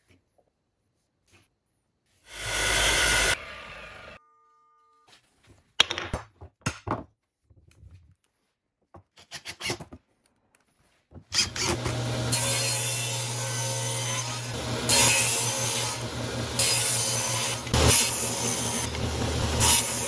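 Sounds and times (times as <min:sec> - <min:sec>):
table saw cutting wood: 0:02.3 - 0:04.2, 0:11.4 - 0:20.0.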